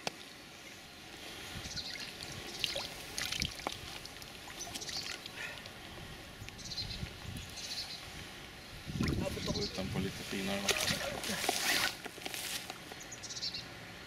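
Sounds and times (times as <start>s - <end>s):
small water splashes: 1.8s - 5.8s, 10.6s - 12.0s
water trickling and dripping: 1.8s - 6.6s.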